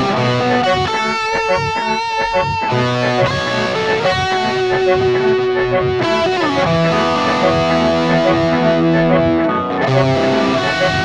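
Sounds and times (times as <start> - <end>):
distorted electric guitar: 0.0 - 11.0.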